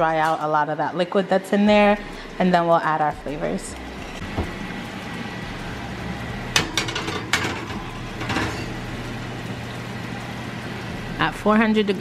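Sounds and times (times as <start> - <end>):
oven rack pulled out: 6.5 - 9.0.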